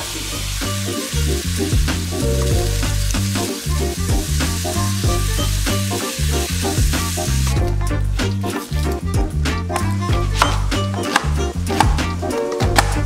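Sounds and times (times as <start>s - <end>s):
meat sizzling in a frying pan: 0.0s - 7.6s
background music with deep bass: 0.0s - 13.0s.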